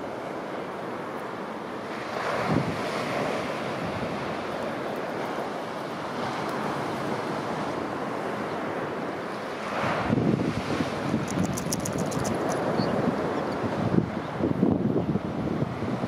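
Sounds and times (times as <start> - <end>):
wind: 0.0 - 16.0
breaking surf: 1.8 - 14.1.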